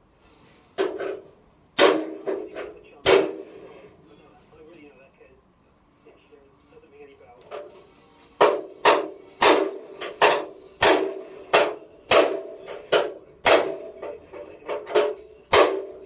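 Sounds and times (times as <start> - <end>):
hammer striking steel: 0.8 - 3.9, 8.4 - 16.0.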